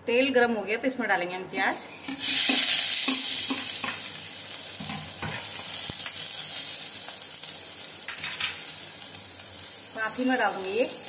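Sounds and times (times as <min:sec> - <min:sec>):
spoon scraping and tapping pan: 0:01.6 - 0:04.1
onions sizzling in hot oil: 0:01.9 - 0:11.0.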